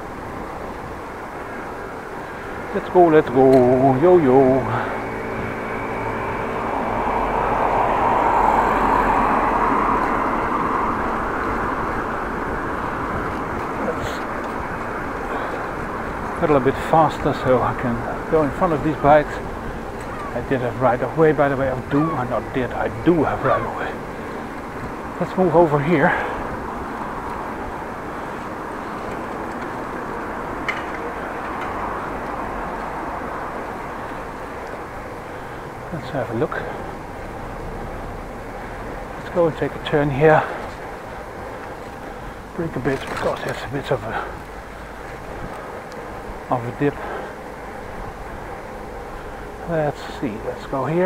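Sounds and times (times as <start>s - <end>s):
bicycle rolling on asphalt: 0.0s - 51.0s
wind noise: 4.6s - 35.2s.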